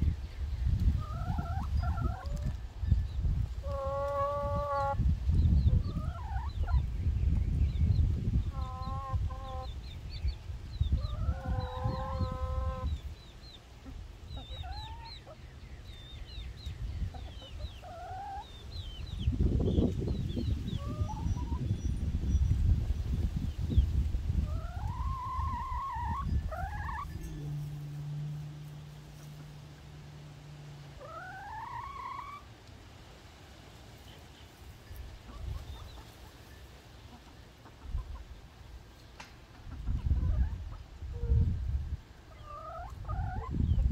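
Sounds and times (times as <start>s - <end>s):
hens calling: 0.7s - 5.1s, 5.7s - 6.9s, 8.0s - 10.1s, 10.8s - 21.8s, 24.4s - 32.5s, 42.2s - 43.9s
chicken call: 24.5s - 29.5s, 31.0s - 32.5s
steady low hum: 26.2s - 31.1s.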